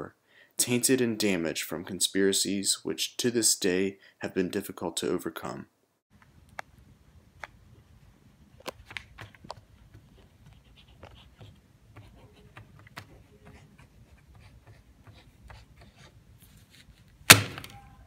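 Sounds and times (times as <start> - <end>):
pencil scratching on paper: 10.2 - 17.0.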